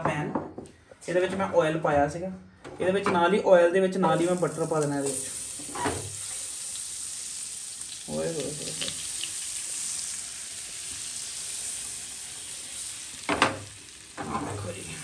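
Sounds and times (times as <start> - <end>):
butter sizzling in a frying pan: 4.1 - 15.0.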